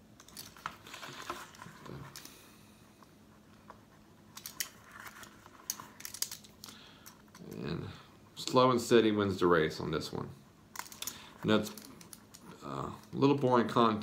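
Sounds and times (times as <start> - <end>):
rubber rustling: 0.2 - 2.3, 3.3 - 6.7.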